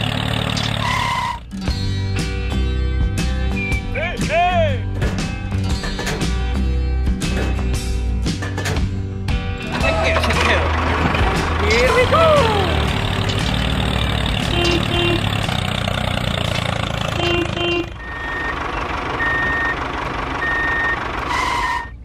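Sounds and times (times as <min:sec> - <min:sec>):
heavy vehicle engine running: 0:00.0 - 0:01.6, 0:04.9 - 0:22.0
back-up alarm beeping: 0:18.0 - 0:21.0.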